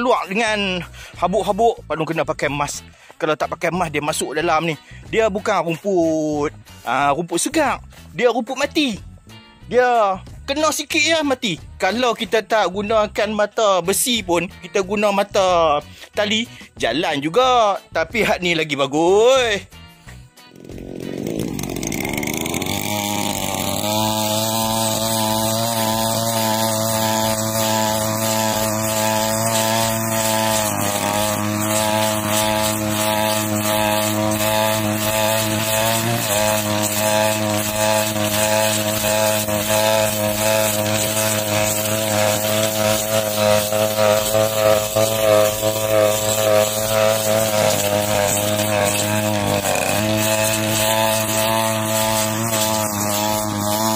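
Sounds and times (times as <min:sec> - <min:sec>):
blade cutting dry grass: 0:20.0 - 0:53.9
brush cutter engine running: 0:20.3 - 0:53.9.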